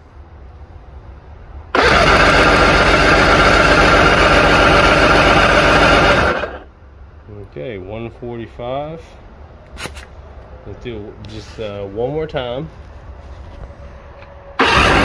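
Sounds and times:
outboard motor cranking on starter: 1.7 - 6.6, 14.6 - 15.0.

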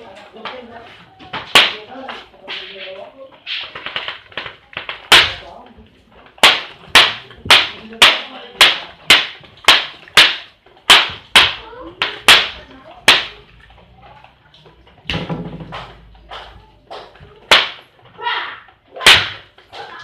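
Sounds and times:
wooden jaw clacking: 6.3 - 13.8, 15.0 - 18.0.

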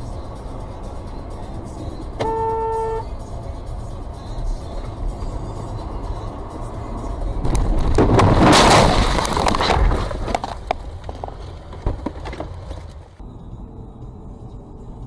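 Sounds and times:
car crash impact and crunching: 7.4 - 11.2.

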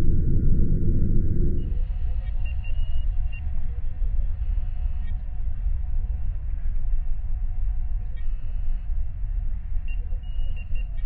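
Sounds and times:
low engine rumble: 0.0 - 1.8.

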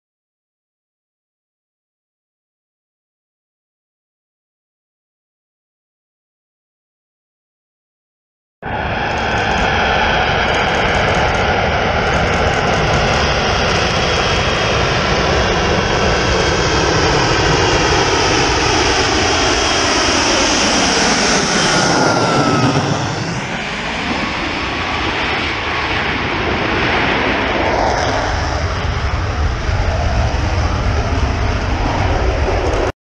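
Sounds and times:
jet engine roar: 8.6 - 33.0.

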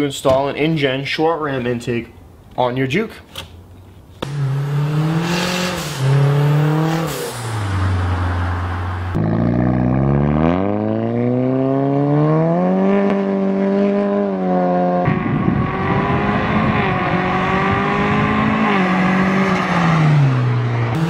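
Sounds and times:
road and wind noise: 0.0 - 21.0
car engine accelerating: 4.2 - 21.0.

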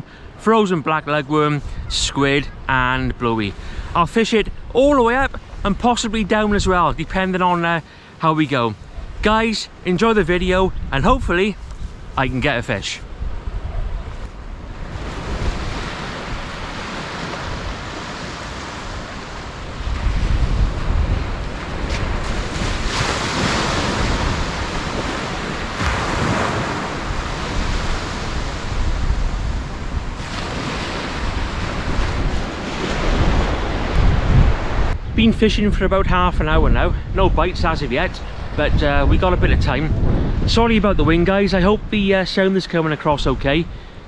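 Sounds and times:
wind buffeting microphone: 1.5 - 2.7, 8.8 - 42.2
surf breaking on beach: 14.6 - 41.9.

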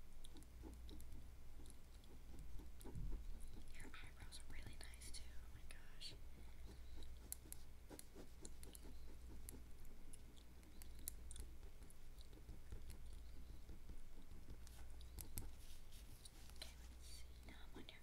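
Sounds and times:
low steady hum: 0.0 - 18.0
gum chewing mouth clicks: 10.0 - 13.2.

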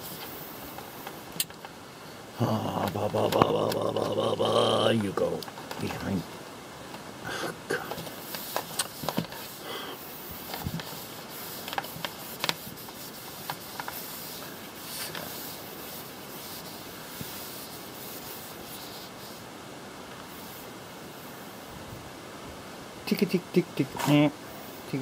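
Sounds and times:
faint hiss: 0.0 - 25.0
hand scrubbing shelf: 7.7 - 19.5.

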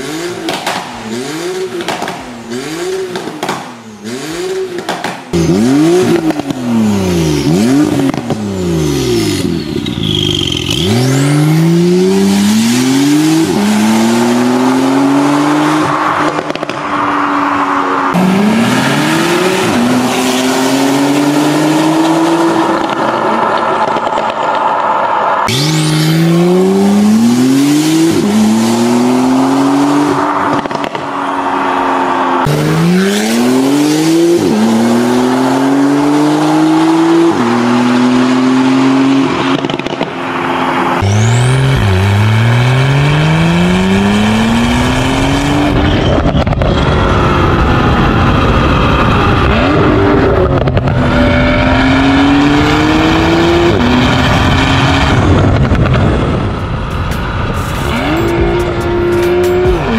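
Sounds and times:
car engine accelerating hard: 25.4 - 59.9.

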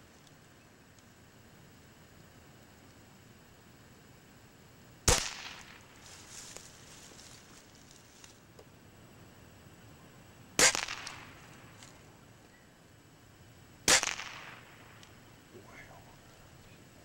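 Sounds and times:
air rifle shots: 5.0 - 6.0, 10.6 - 11.9, 13.8 - 15.2.

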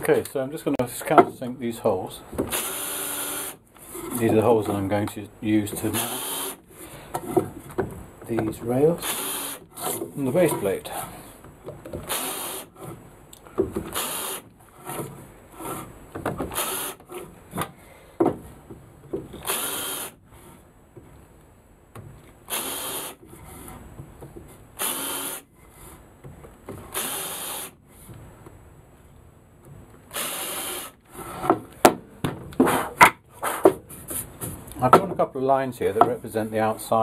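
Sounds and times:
cordless drill drilling into wood: 2.5 - 3.6, 5.9 - 6.6, 9.0 - 10.0, 12.0 - 12.8, 13.9 - 14.5, 16.5 - 17.0, 19.4 - 20.2, 22.4 - 23.2, 24.8 - 25.5, 26.9 - 27.8, 30.1 - 31.3.

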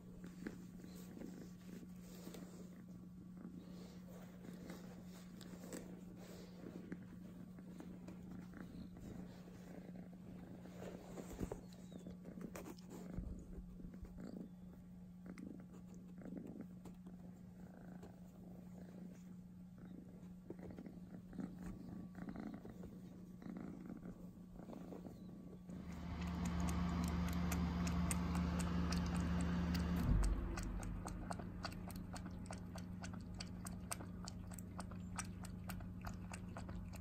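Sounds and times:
kitten purring: 0.0 - 37.0.

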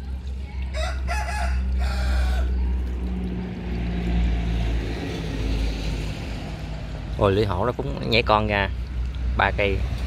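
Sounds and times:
low engine drone: 0.0 - 10.0
rooster crowing: 0.7 - 2.7.

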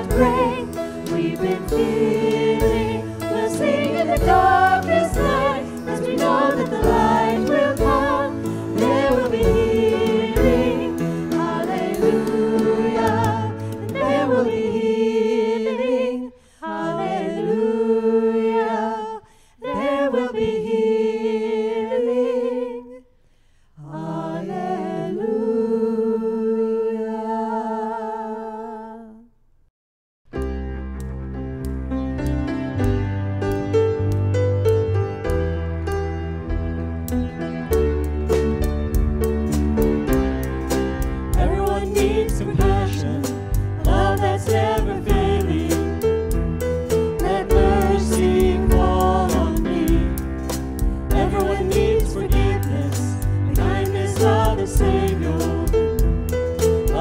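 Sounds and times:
people singing: 0.0 - 23.0, 23.8 - 29.3, 41.0 - 57.0
band with drums: 37.7 - 57.0.

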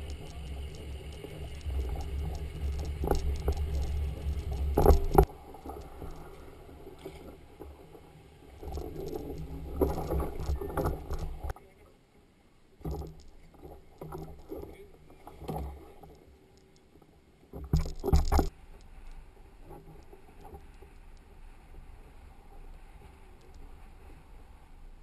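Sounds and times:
kayak rumbling over concrete: 0.0 - 11.6.

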